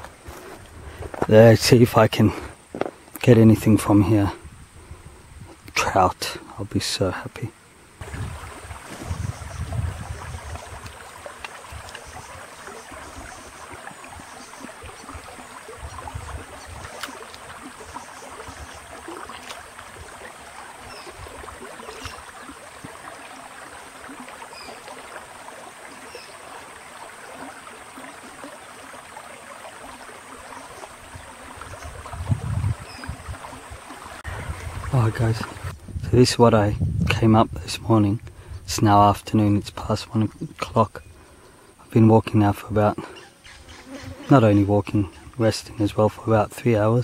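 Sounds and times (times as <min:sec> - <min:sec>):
river flowing over stones: 0:05.9 - 0:35.7.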